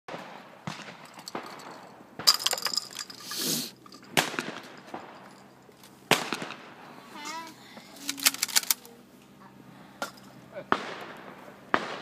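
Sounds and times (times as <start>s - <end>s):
short clinking rattle: 1.0s - 5.9s
snap-pop fireworks cracking: 4.1s - 5.2s, 6.1s - 6.8s.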